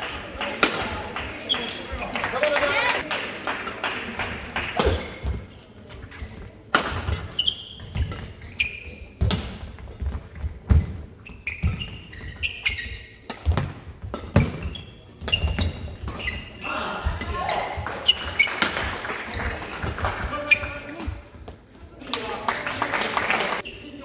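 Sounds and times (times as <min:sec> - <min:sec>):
shoes squeaking on court: 0:01.3 - 0:02.1, 0:04.9 - 0:21.3
rackets striking shuttlecock: 0:04.6 - 0:05.4, 0:06.7 - 0:11.0, 0:12.7 - 0:16.3.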